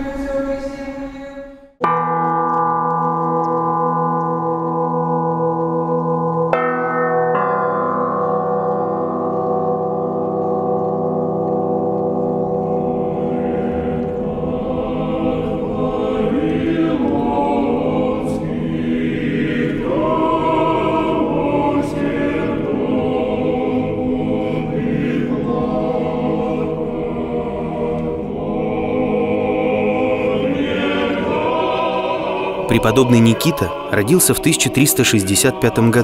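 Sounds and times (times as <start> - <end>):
choir singing held chords: 0.0 - 36.0.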